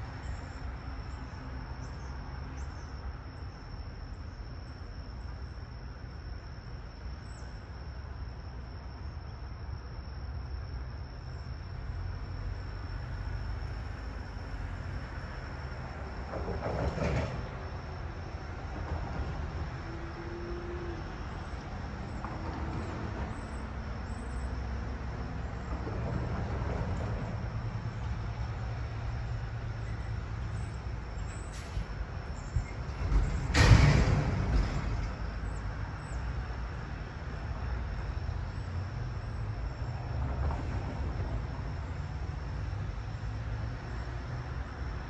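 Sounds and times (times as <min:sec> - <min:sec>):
heavy vehicle idling: 0:29.5 - 0:36.2
air brake hiss: 0:31.3 - 0:32.0.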